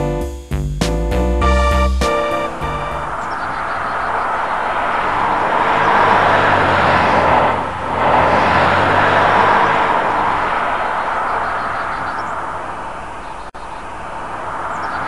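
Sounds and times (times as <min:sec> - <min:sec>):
toy jet engine roar: 0:03.0 - 0:12.6.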